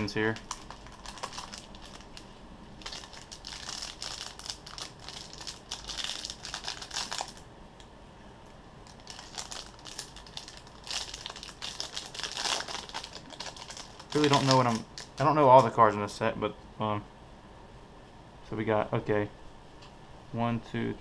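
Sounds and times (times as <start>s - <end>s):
plastic wrapper crinkling: 0.0s - 7.4s, 8.8s - 15.7s.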